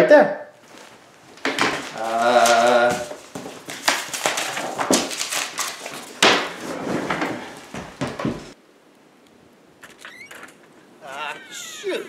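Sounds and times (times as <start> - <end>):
paper rustling and shuffling: 0.6 - 8.6.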